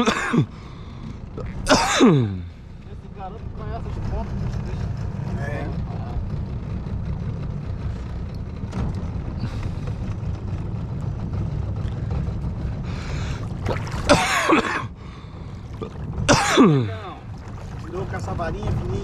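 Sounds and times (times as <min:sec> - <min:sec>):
outboard motor running: 0:00.0 - 0:19.0.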